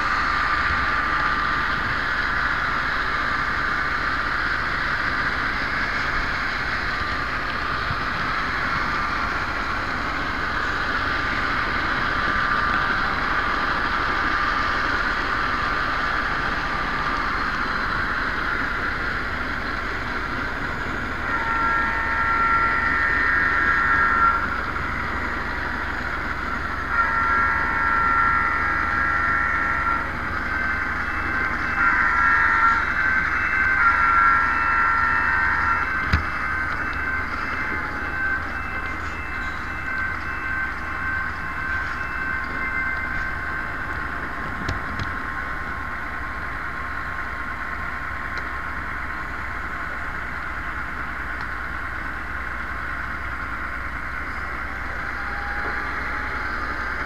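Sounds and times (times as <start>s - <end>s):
model train whirring: 0.0s - 57.0s
multi-note horn blasts: 21.2s - 24.6s, 26.9s - 38.4s.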